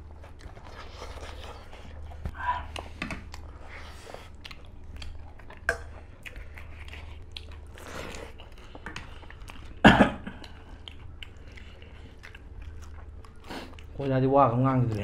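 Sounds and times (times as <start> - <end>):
wet chewing and crisp biting: 0.0 - 15.0
person coughing: 9.8 - 10.4.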